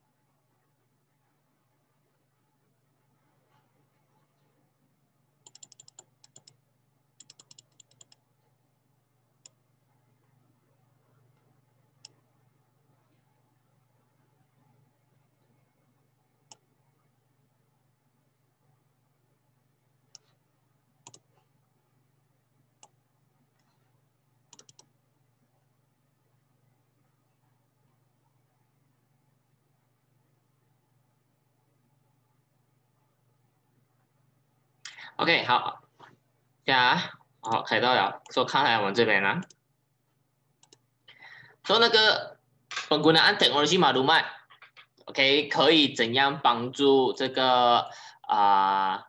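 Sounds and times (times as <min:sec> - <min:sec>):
faint low hum: 0:00.0 - 0:49.0
typing on computer keyboard: 0:05.5 - 0:06.6, 0:07.2 - 0:08.2.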